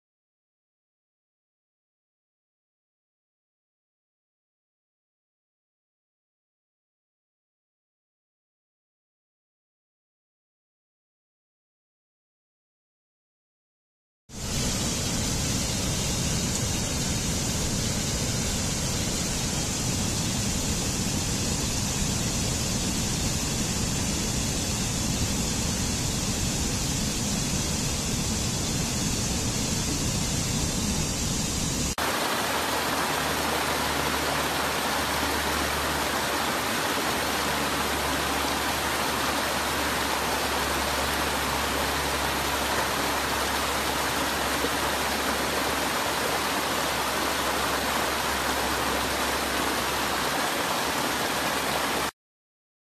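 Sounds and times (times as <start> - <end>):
stream rushing over rocks: 32.0 - 52.1.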